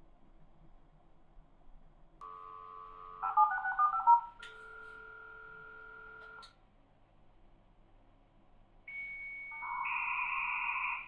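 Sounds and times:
dial tone: 2.2 - 6.4.

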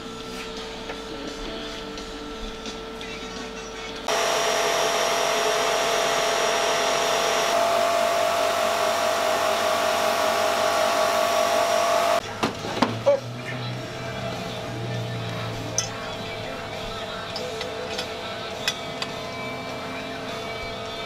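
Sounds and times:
steady whine: 4.0 - 12.3.

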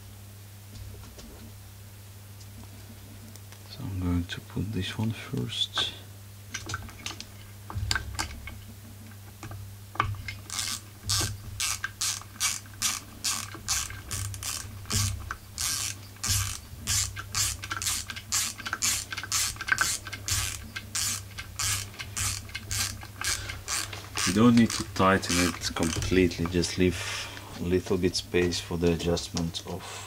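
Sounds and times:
hand ratchet clicking: 10.0 - 26.7.

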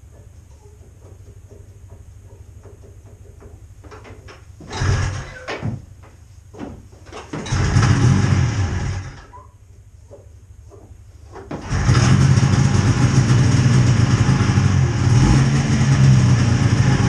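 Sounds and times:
engine cranking: 4.7 - 5.5, 7.4 - 9.3, 11.6 - 14.7.

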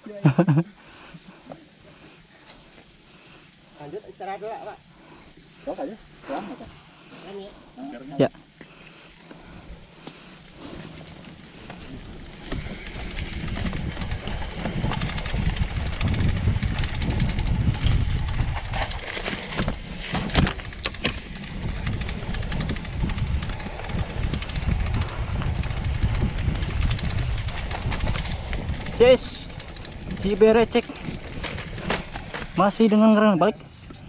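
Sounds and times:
bike rumbling and rattling: 8.4 - 34.0
wind buffeting microphone: 9.4 - 32.9.

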